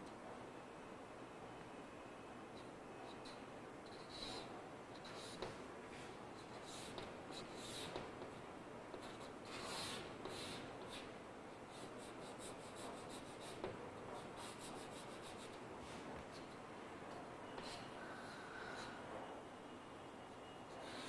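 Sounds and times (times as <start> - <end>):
chalk scratching on blackboard: 9.0 - 11.1, 11.8 - 16.5.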